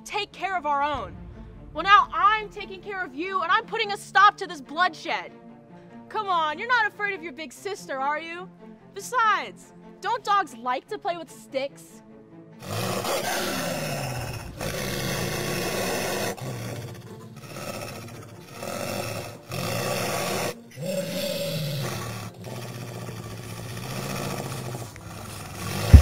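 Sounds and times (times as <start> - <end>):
deep drawn-out growls: 12.6 - 26.0.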